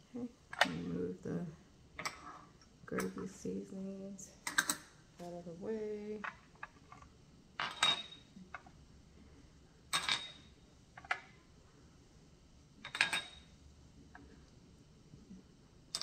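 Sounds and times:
dishes clinking on counter: 7.6s - 8.3s, 12.9s - 13.5s.

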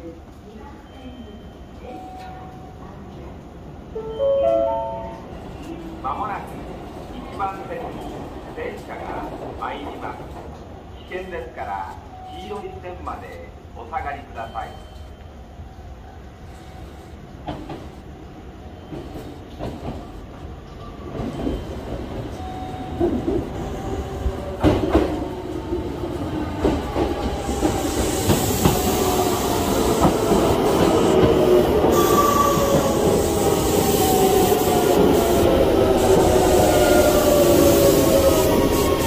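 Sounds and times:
electric train arriving: 0.3s - 39.0s
falling whine of train: 12.1s - 39.0s.

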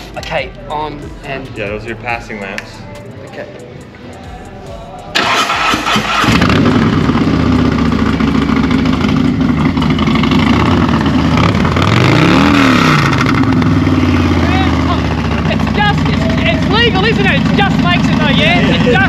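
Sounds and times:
motorcycle engine starting and idling: 5.1s - 19.0s.

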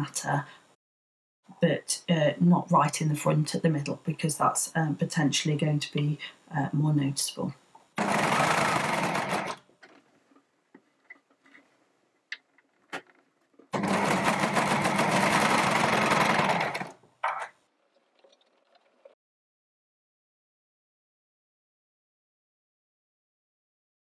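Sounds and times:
overlocker stitching: 8.0s - 17.6s.

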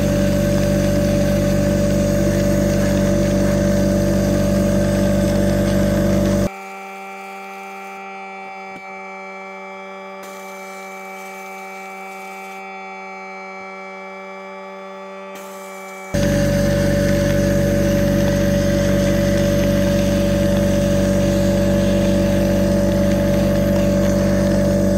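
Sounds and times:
steady electric hum: 0.0s - 6.5s, 15.8s - 24.9s
air compressor running: 0.0s - 24.9s.

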